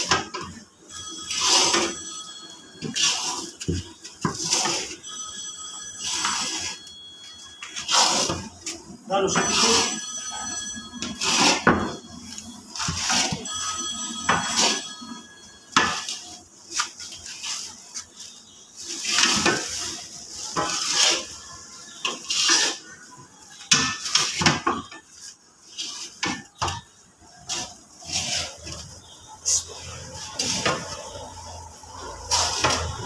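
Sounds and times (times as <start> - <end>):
metal scraper scraping a wok: 11.0 - 12.0, 18.9 - 23.0, 27.4 - 28.9, 32.0 - 33.0.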